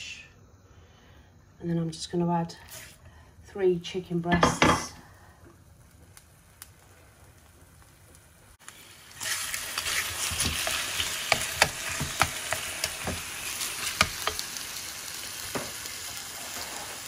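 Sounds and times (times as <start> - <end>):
chicken sizzling in hot oil: 5.6 - 17.0.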